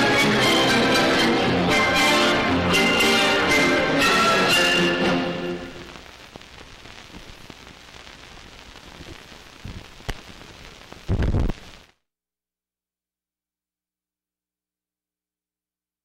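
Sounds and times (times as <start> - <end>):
film soundtrack hiss and crackle: 0.0 - 12.0.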